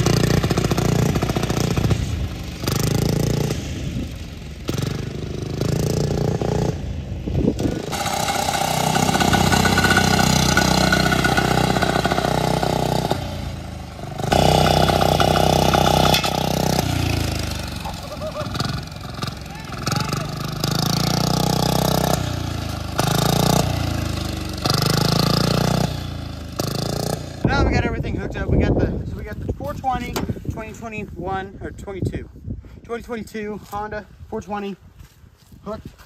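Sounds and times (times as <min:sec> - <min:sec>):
small engine revving: 0:00.0 - 0:27.5.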